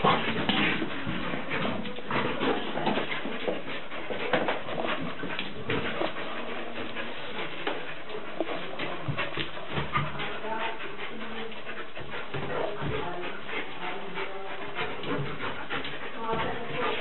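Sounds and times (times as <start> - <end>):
dogs scuffling on tiled floor: 0.0 - 17.0.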